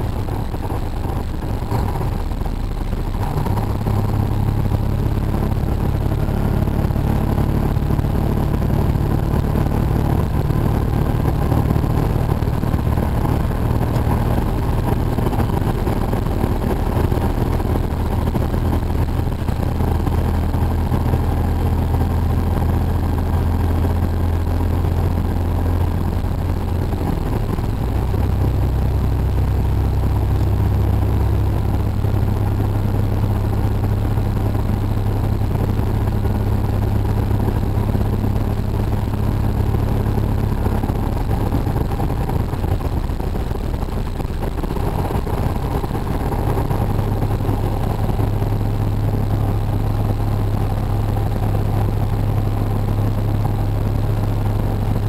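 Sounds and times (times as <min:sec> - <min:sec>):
truck diesel engine droning: 0:00.0 - 0:55.0
tyre and road noise: 0:00.0 - 0:55.0.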